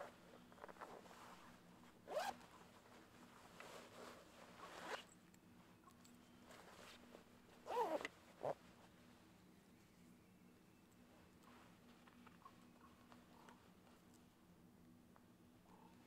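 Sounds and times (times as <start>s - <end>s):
jacket zipper rasping: 2.1s - 2.4s, 7.6s - 8.6s.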